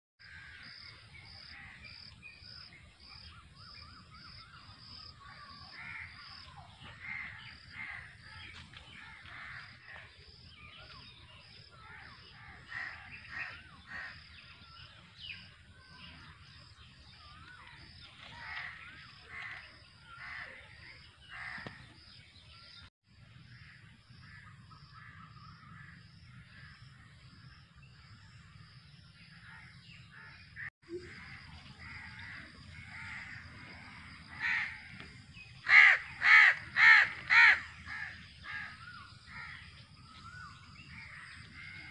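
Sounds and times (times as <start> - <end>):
birds calling: 29.3 - 41.9
crows cawing: 34.3 - 39.6.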